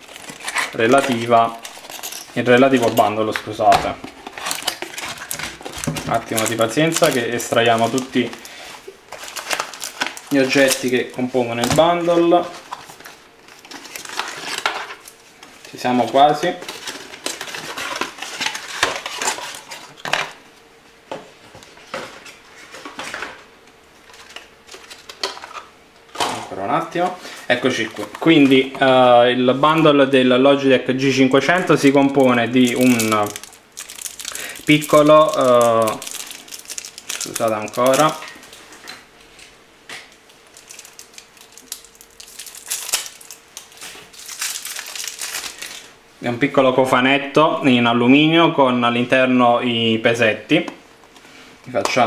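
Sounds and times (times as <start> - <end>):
plastic packaging crackling: 0.0 - 20.4, 24.0 - 25.7, 31.5 - 38.7, 40.2 - 45.9.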